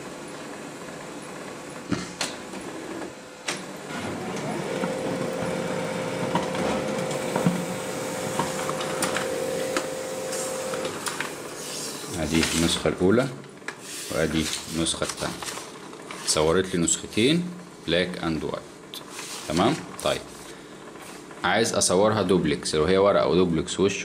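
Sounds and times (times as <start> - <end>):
printer running with level hum: 0.0 - 23.7
printer mechanism clicks: 8.3 - 9.9.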